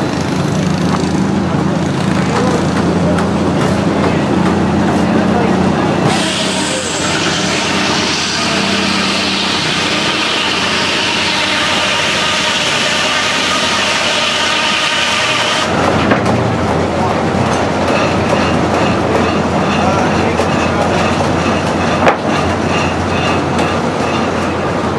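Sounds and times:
sawmill carriage clattering on rails: 0:00.0 - 0:09.8, 0:15.6 - 0:24.9
circular saw cutting log: 0:06.0 - 0:15.8.

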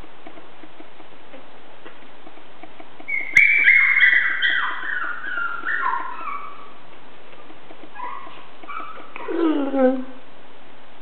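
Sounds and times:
puppy whining: 0:02.2 - 0:10.2.

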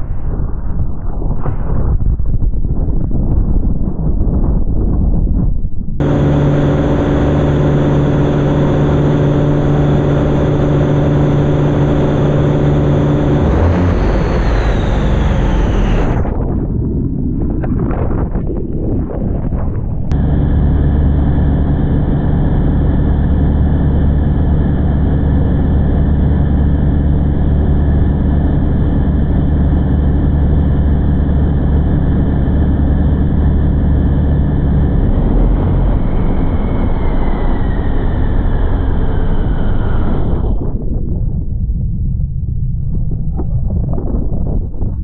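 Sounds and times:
high whine falling in pitch: 0:05.3 - 0:45.0
boat engine running loud: 0:06.0 - 0:16.5, 0:20.1 - 0:40.9.

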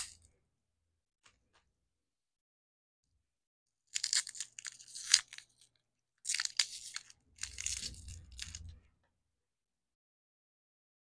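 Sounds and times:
candy wrapper crackling: 0:03.9 - 0:08.8.

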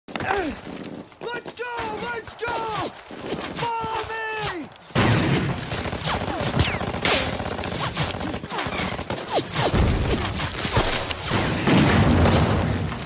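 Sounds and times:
rifle and machine-gun fire: 0:04.9 - 0:13.0
explosions: 0:09.6 - 0:13.0.

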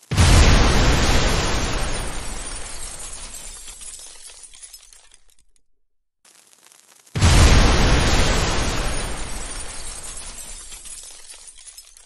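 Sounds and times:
bomb explosion rumble: 0:00.0 - 0:03.6, 0:07.2 - 0:10.8
shattering debris crackling: 0:00.0 - 0:05.6, 0:06.3 - 0:12.0.

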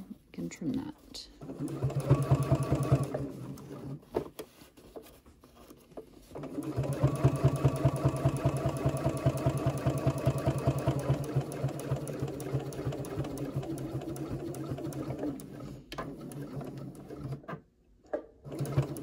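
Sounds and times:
sewing machine stitching: 0:01.4 - 0:04.1, 0:06.3 - 0:17.6, 0:18.4 - 0:19.0.

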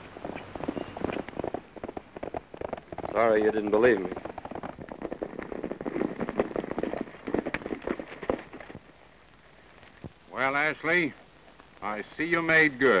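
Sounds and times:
horse hooves clattering: 0:00.0 - 0:09.0.

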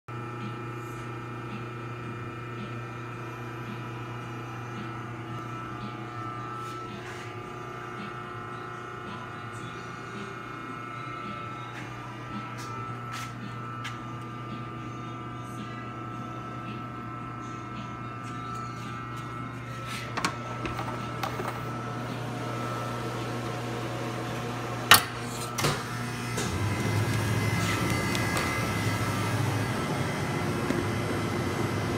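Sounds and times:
machinery humming: 0:00.1 - 0:31.9.

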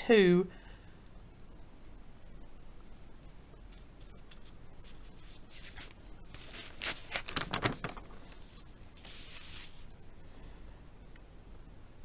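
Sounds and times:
paper pages rustling: 0:03.7 - 0:09.9.

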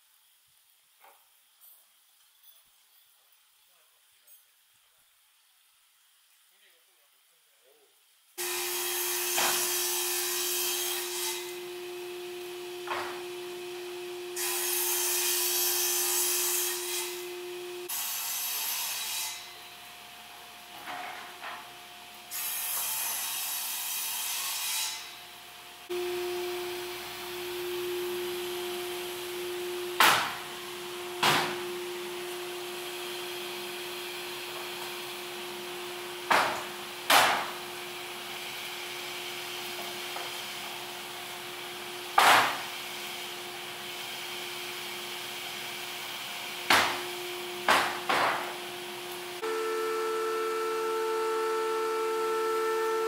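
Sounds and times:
saw cutting wood: 0:08.4 - 0:53.0
table saw humming: 0:08.4 - 0:53.0
boards knocking: 0:31.2 - 0:31.7, 0:36.3 - 0:37.6.

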